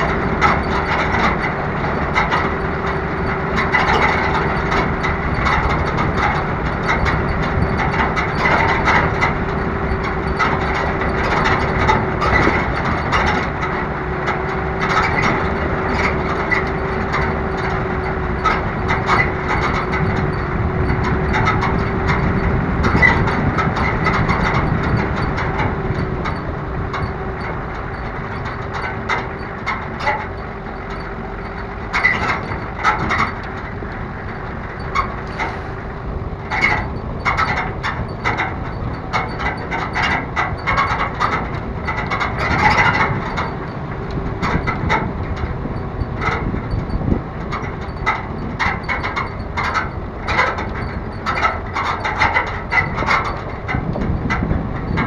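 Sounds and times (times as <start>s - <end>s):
off-road vehicle engine running: 0.0s - 55.0s
metal rack rattling: 14.3s - 55.0s.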